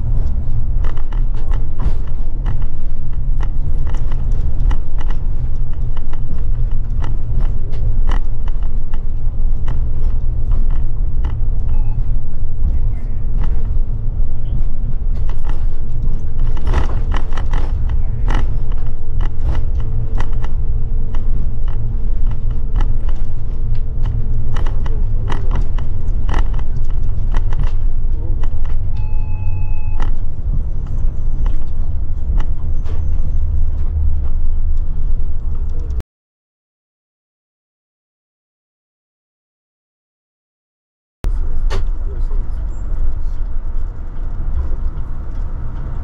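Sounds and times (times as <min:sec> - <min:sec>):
clicks and rattles: 0:00.0 - 0:36.0
coach engine and road rumble: 0:00.0 - 0:36.0, 0:41.2 - 0:46.0.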